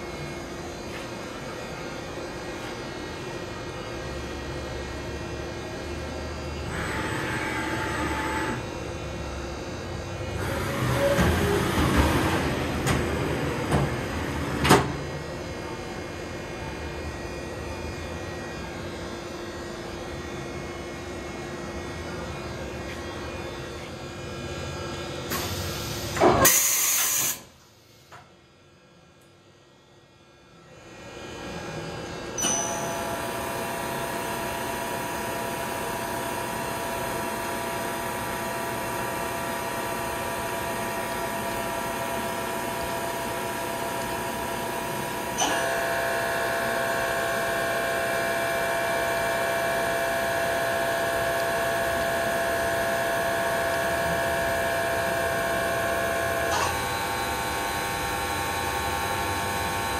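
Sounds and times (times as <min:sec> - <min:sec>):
machining center humming: 0:00.0 - 0:26.2, 0:28.7 - 0:59.9
loud short hiss: 0:26.4 - 0:27.5.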